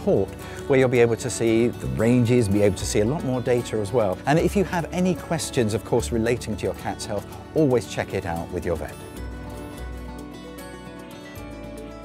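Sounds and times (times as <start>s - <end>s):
instrumental music: 0.0s - 12.0s.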